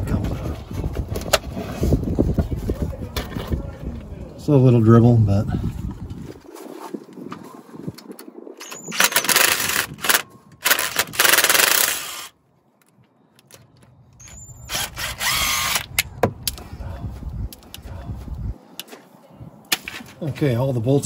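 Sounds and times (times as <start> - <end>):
cordless driver spinning bolts: 8.6 - 12.3, 14.7 - 16.0.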